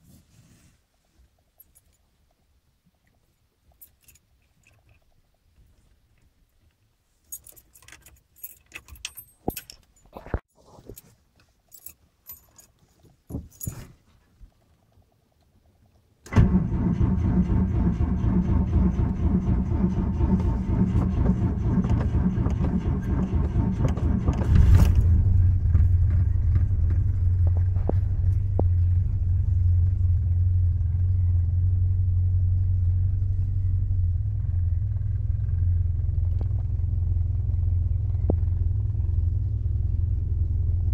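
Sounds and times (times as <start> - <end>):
keys jangling: 3.8 - 5.0, 7.3 - 10.2, 11.7 - 14.0
car engine starting and idling: 16.2 - 40.9
ignition clicks: 16.3 - 25.3.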